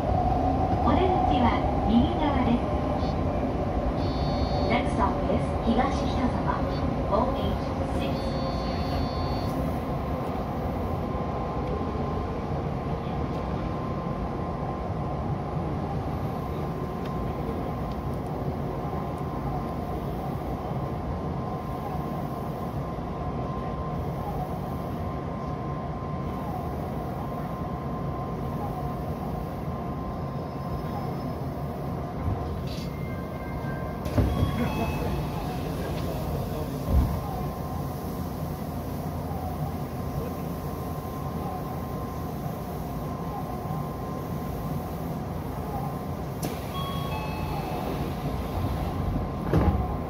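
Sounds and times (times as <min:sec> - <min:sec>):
train wheels rumbling in tunnel: 0:00.0 - 0:50.0
steady high tone: 0:45.7 - 0:48.7.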